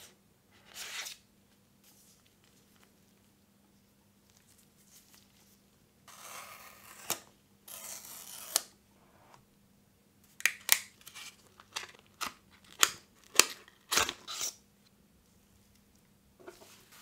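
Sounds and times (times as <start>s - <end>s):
cardboard tear strip ripping: 6.1s - 8.7s.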